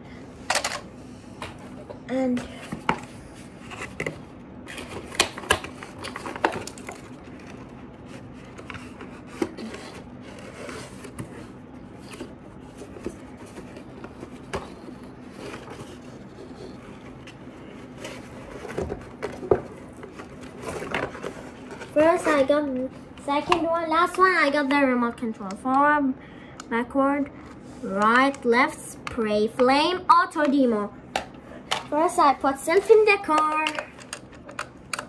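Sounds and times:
cardboard scraping and rustling: 3.5s - 22.9s.

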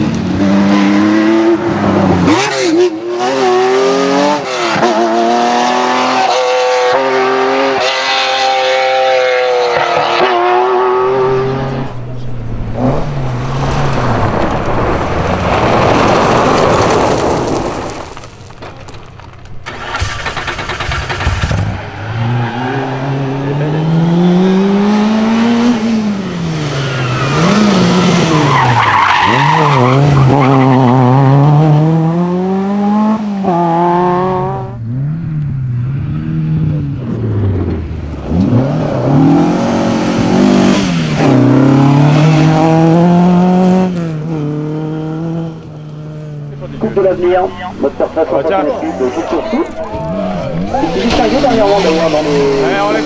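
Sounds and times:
rally car engines revving: 0.0s - 17.6s, 19.2s - 53.0s
gravel hissing from tyres: 13.2s - 21.5s.

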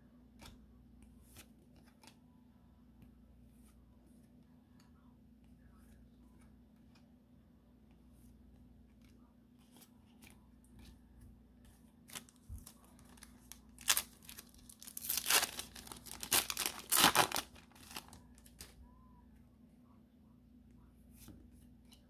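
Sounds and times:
foil wrapper ripping and crinkling: 12.1s - 18.7s.

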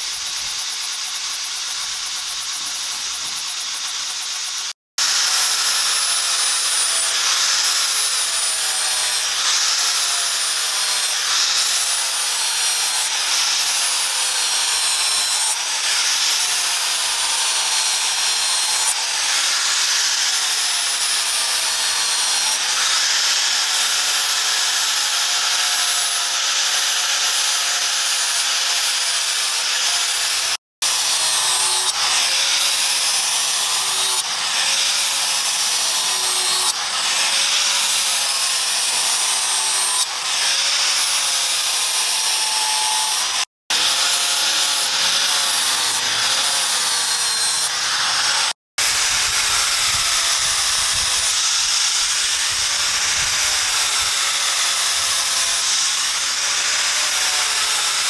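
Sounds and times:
angle grinder grinding steel: 0.0s - 58.0s.

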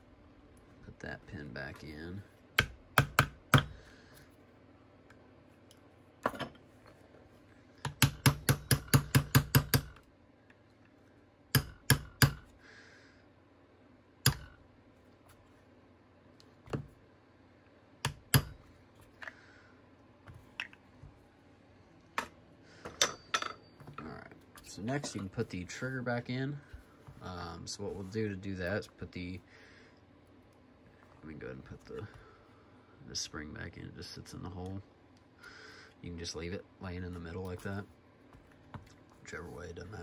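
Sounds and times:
hammer tapping metal pin: 18.0s - 18.6s.

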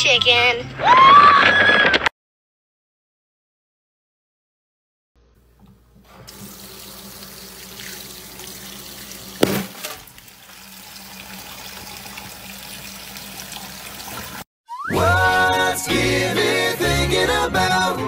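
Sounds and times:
tap water pouring into sink: 6.2s - 14.4s
loud hit: 9.4s - 9.8s.

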